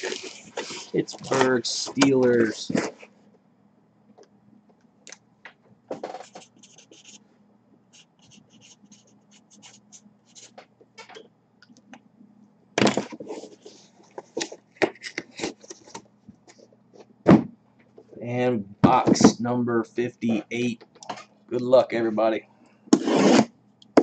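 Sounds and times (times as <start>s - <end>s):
marker pen writing on cardboard: 6.3s - 7.2s, 8.0s - 10.6s, 23.0s - 23.5s.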